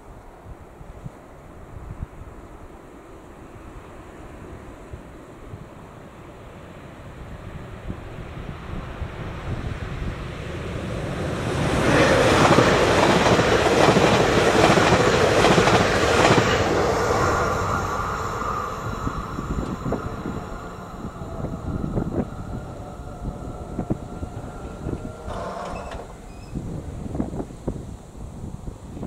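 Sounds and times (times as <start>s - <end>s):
wind buffeting microphone: 3.6s - 29.0s
train wheels rumbling on rails: 7.4s - 29.0s.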